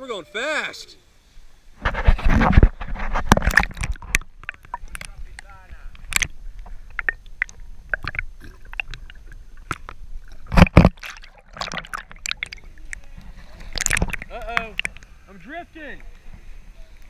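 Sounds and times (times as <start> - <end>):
river water splashing against kayak: 1.8 - 15.2
water slaps: 3.2 - 15.1
loud splashes: 7.0 - 12.9, 13.6 - 15.0.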